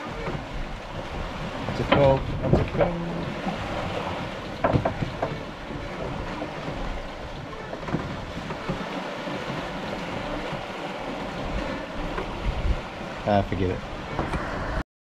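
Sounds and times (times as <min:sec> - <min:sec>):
wind and water rushing: 0:00.0 - 0:14.8
wind buffeting microphone: 0:00.0 - 0:14.8
short knocks: 0:04.5 - 0:06.8.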